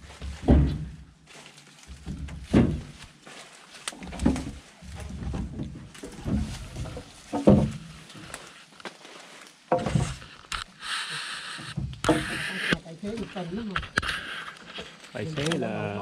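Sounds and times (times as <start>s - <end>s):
logs thudding onto truck: 0.1s - 1.1s, 1.9s - 3.1s, 4.0s - 8.2s, 9.7s - 10.3s, 11.8s - 12.5s.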